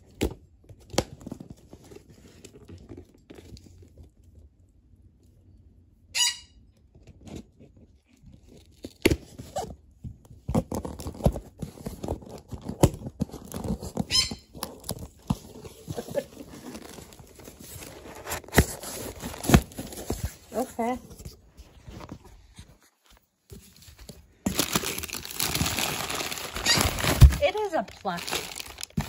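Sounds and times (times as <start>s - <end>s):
package being handled: 8.2s - 29.0s.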